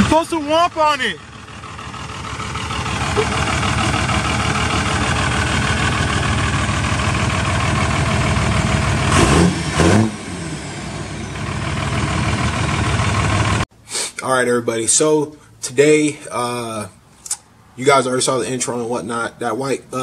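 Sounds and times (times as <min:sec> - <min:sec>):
diesel engine running and revving: 0:00.0 - 0:13.7.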